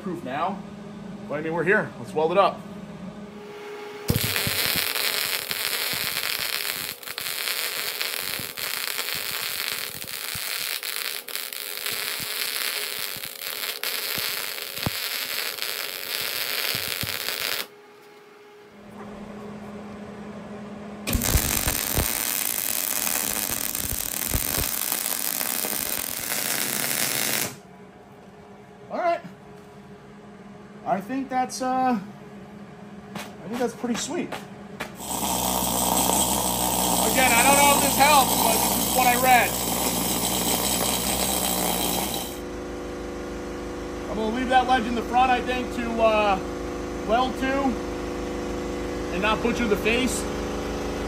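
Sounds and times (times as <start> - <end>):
low steady hum: 0.0 - 35.0, 42.4 - 51.0
welding arc crackling and hissing: 4.1 - 17.7, 21.1 - 27.6, 34.9 - 42.4.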